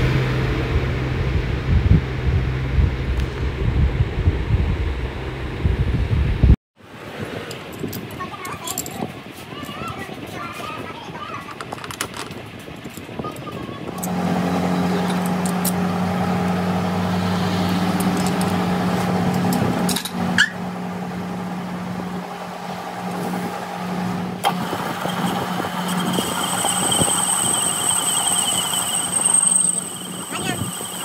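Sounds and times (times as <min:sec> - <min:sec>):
high-pitched cutting whine: 0:14.0 - 0:31.0
lathe humming: 0:14.0 - 0:31.0.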